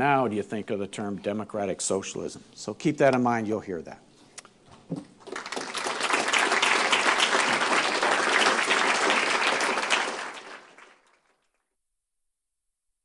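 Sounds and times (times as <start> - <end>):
audience applauding: 5.2 - 11.6.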